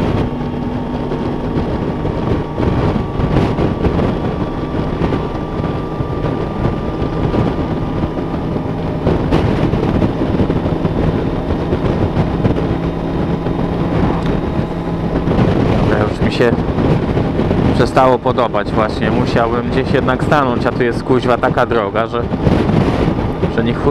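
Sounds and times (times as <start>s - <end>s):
motorcycle engine running: 0.0s - 23.9s
wind rushing over microphone: 0.0s - 23.9s.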